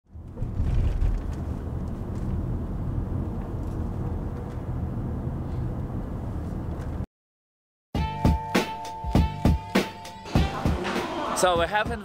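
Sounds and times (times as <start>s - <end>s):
car engine and road noise: 0.0s - 7.1s.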